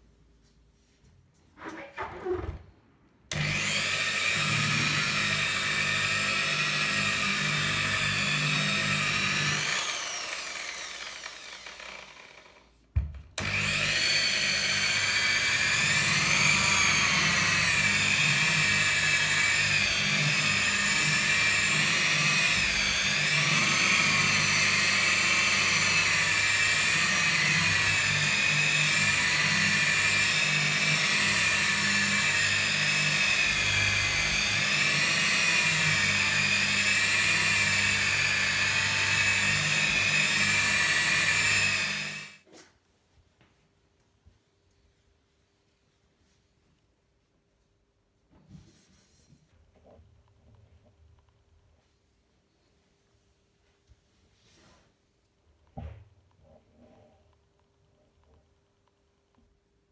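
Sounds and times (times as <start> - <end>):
car polisher motor whining: 3.3 - 12.6, 13.4 - 42.4.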